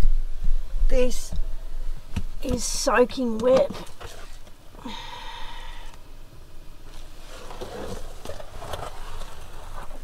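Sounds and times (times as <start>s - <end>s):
wet carpet rustling and scraping: 3.7s - 4.5s, 6.9s - 10.0s.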